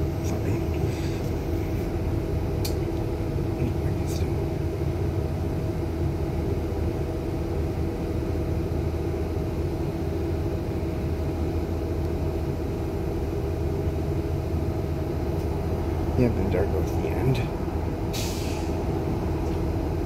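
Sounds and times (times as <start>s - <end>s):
bus engine idling: 0.0s - 20.0s.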